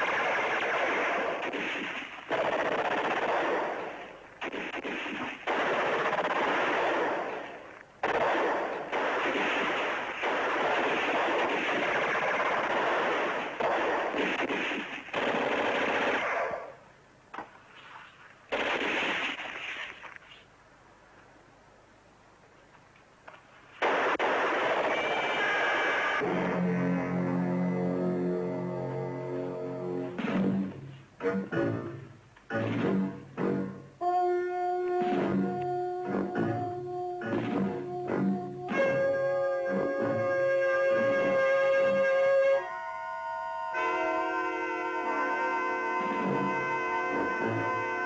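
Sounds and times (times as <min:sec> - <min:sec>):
automatic gunfire bursts: 0:00.0 - 0:16.7, 0:18.5 - 0:19.5, 0:23.8 - 0:26.2.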